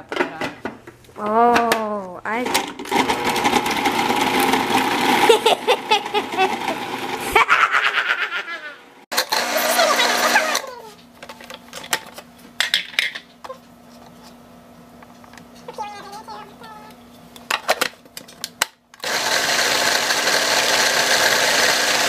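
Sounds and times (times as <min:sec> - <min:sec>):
food processor chopping: 0:02.4 - 0:07.4, 0:09.1 - 0:10.7, 0:19.0 - 0:22.0.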